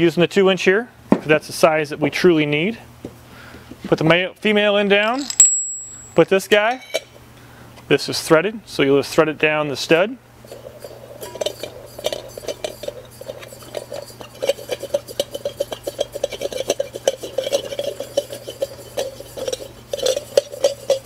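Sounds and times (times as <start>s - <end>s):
metallic clicks of threads: 5.1s - 6.2s.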